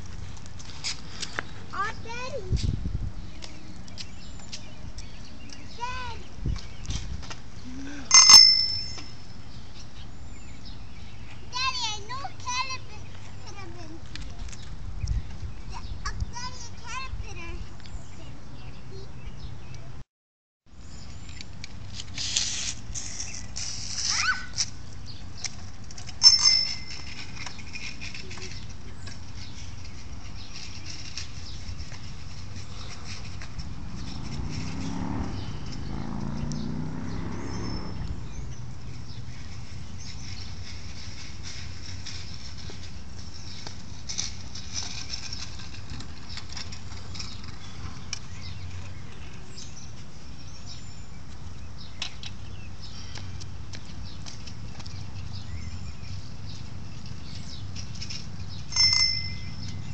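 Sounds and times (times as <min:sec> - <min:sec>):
outdoor background noise: 0:00.0 - 0:20.0, 0:20.7 - 0:59.9
bicycle bell ringing: 0:08.1 - 0:09.3, 0:26.2 - 0:27.2, 0:58.7 - 0:59.9.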